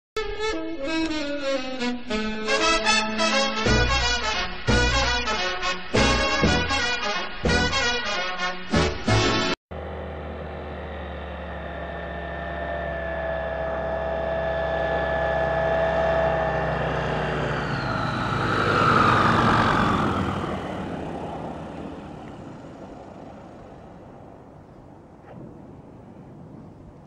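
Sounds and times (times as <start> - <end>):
propeller aircraft engine passing: 9.7 - 27.0.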